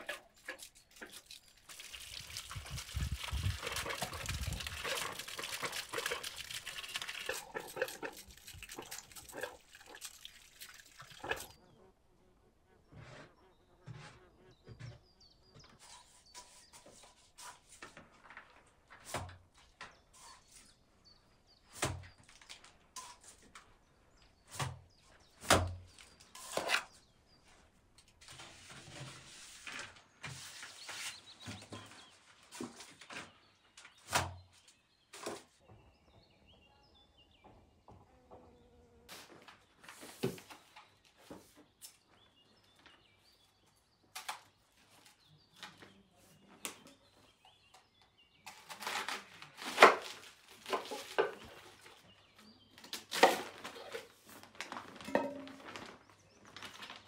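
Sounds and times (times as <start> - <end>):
rustling: 52.9 - 57.0.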